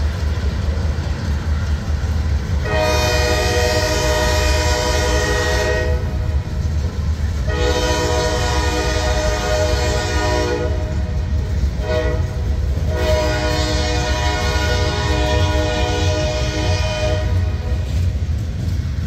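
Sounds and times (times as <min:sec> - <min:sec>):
boxcars rumbling by: 0:00.0 - 0:19.0
locomotive air horn blasts: 0:02.6 - 0:06.4, 0:07.4 - 0:11.2, 0:11.8 - 0:17.9.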